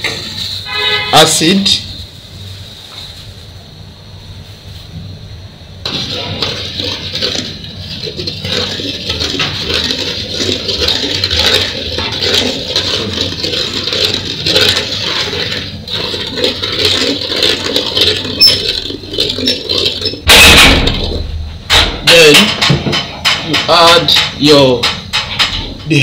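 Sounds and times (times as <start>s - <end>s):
gas burner roar: 0.0s - 26.0s
mixture boiling and bubbling: 0.0s - 26.0s
wooden spoon scraping metal pot: 5.8s - 21.2s.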